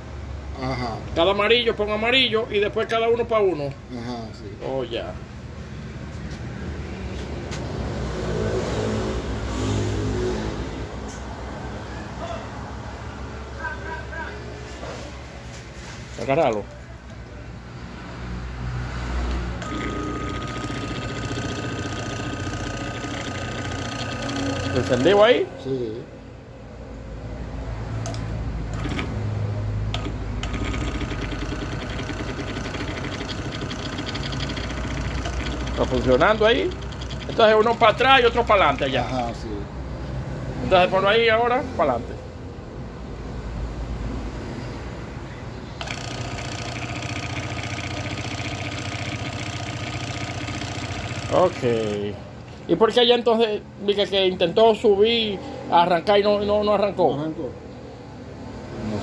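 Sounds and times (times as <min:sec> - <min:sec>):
motor speeding up and easing off: 0:19.6 - 0:25.2, 0:30.0 - 0:38.0, 0:45.8 - 0:52.0.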